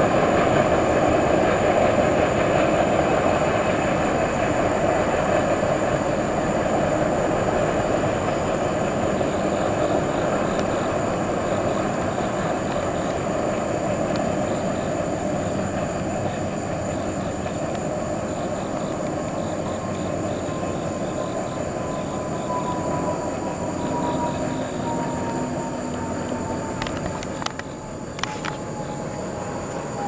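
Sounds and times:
train wheels clattering over rails: 0.0 - 30.0
faint thin whine: 18.4 - 30.0.

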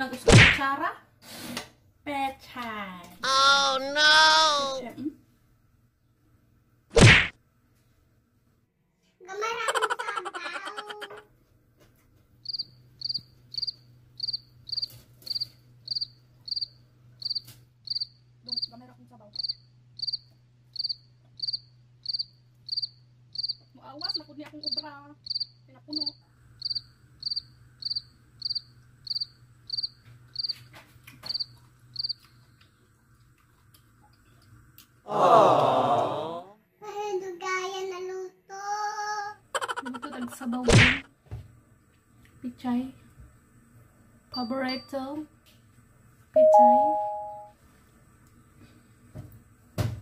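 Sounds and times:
cricket chirping: 12.4 - 32.3.

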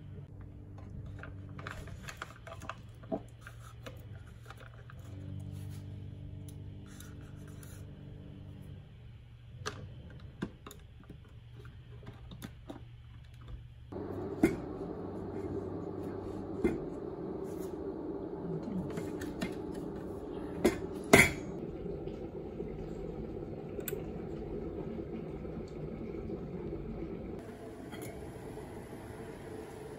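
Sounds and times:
steady hum: 13.9 - 29.9.

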